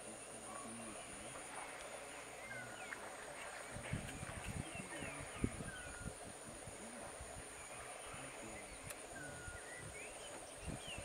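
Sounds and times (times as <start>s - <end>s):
bird chirps: 7.6s - 11.0s.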